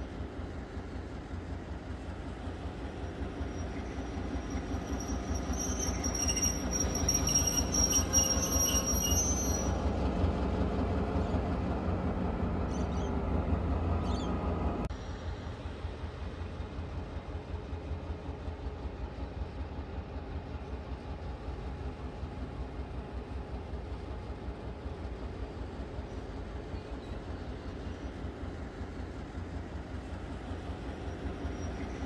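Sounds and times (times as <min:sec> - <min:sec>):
diesel locomotive rumble: 0:00.0 - 0:32.0
high wheel squeal: 0:03.0 - 0:10.3, 0:31.0 - 0:32.0.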